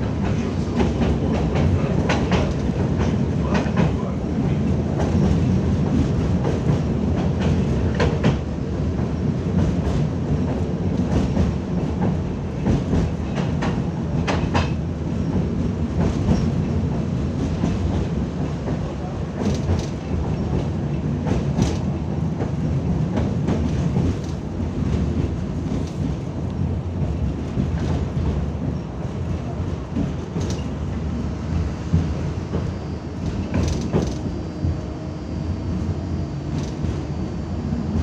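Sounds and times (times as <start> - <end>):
tram running gear rumble: 0.0 - 38.0.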